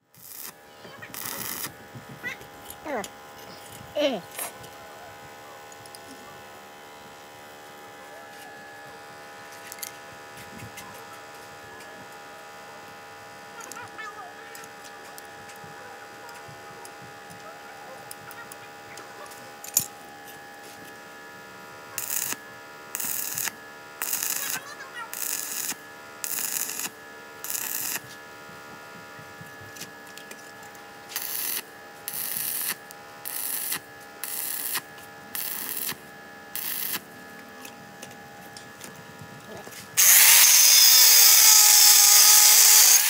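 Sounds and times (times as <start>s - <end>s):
welder hum: 0.0s - 43.0s
welding arc hissing: 0.1s - 2.1s, 22.0s - 28.0s, 31.1s - 37.1s, 40.0s - 43.0s.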